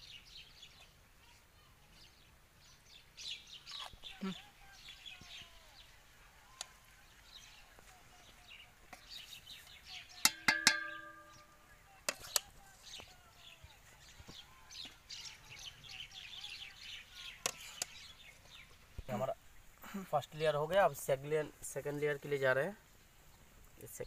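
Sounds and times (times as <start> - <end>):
small birds chirping: 0.0 - 24.0
ladle clanking on metal pot: 10.2 - 11.6.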